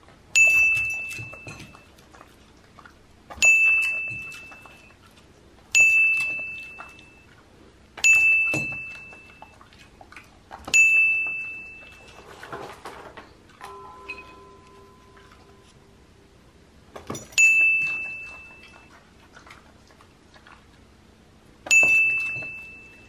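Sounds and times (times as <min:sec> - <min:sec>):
bell-like ding: 0:13.7 - 0:15.7, 0:17.3 - 0:18.6, 0:21.7 - 0:23.0.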